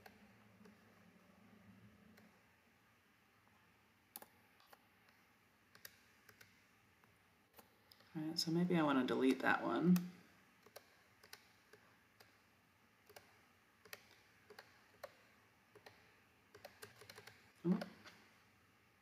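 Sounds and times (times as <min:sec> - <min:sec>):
mouse and keyboard clicks: 0:04.2 - 0:06.6, 0:10.0 - 0:12.4, 0:13.0 - 0:18.2.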